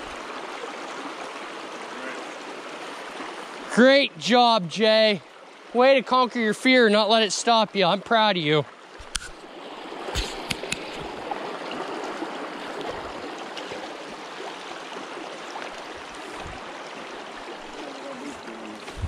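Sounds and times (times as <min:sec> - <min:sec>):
creek water flowing: 0:00.0 - 0:19.0
sharp clicks: 0:10.2 - 0:11.0.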